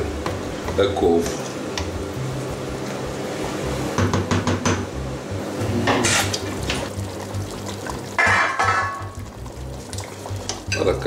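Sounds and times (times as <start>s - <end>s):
background music: 0.0s - 11.0s.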